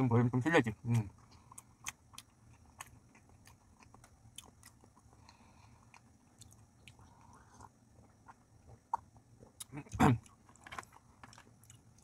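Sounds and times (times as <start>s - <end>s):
person chewing food: 0.8s - 12.0s.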